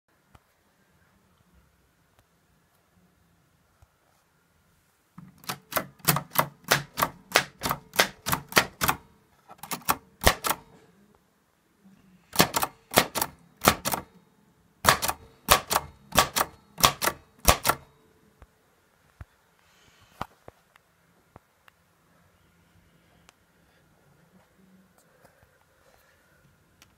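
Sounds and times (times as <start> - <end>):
typewriter typing: 5.2 - 9.0, 9.6 - 10.6, 12.3 - 14.1, 14.8 - 17.8.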